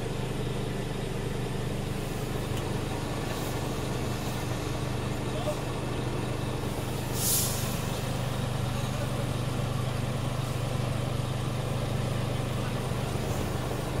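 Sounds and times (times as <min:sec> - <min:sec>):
diesel engine idling: 0:00.0 - 0:14.0
brief hiss: 0:07.0 - 0:08.1.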